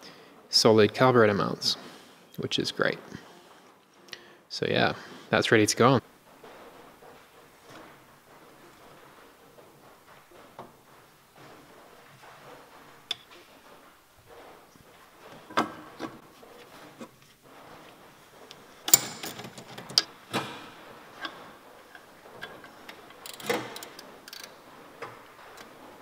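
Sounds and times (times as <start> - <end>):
metallic clinks and knocks: 18.9 - 20.1.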